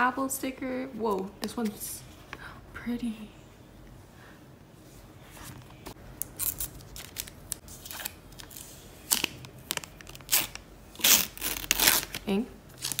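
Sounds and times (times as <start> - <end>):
plastic film crackling: 6.2 - 13.0.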